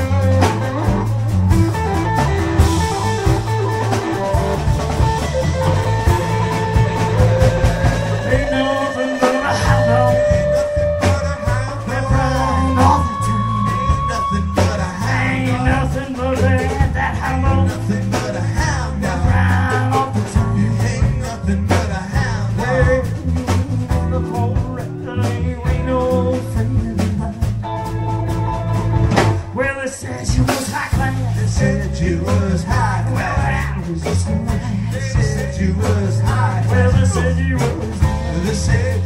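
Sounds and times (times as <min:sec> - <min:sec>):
instrumental rock and roll music: 0:00.0 - 0:39.0.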